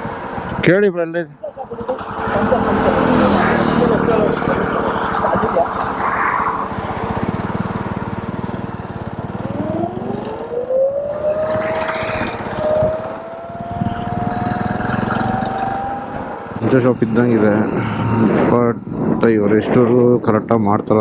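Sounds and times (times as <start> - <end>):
wind and road noise: 0.0 - 21.0
motorcycle engine: 1.6 - 19.2
electric scooter motor whining: 2.0 - 16.6.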